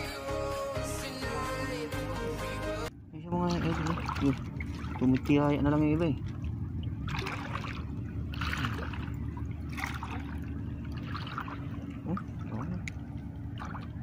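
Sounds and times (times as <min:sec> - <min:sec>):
steady low hum: 0:02.8 - 0:14.0
water splashing and trickling: 0:03.2 - 0:14.0.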